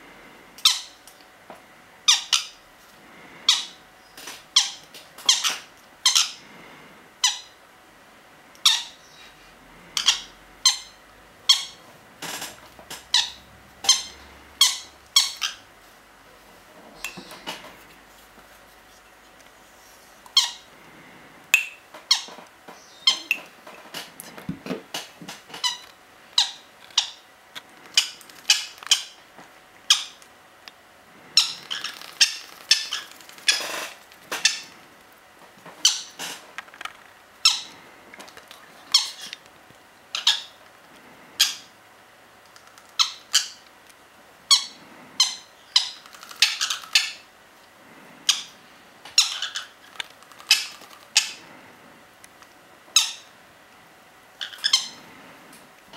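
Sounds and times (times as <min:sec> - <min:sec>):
parrot chicks squawking: 0:00.6 - 0:01.0, 0:02.0 - 0:02.6, 0:03.4 - 0:06.5, 0:07.2 - 0:07.6, 0:08.6 - 0:09.3, 0:09.9 - 0:15.7, 0:20.3 - 0:20.9, 0:22.0 - 0:23.5, 0:25.5 - 0:29.2, 0:29.8 - 0:30.2, 0:31.3 - 0:34.9, 0:35.7 - 0:36.8, 0:37.4 - 0:39.5, 0:40.1 - 0:40.7, 0:41.4 - 0:41.8, 0:42.6 - 0:43.7, 0:44.4 - 0:47.3, 0:48.2 - 0:51.6, 0:52.9 - 0:53.4, 0:54.4 - 0:55.2.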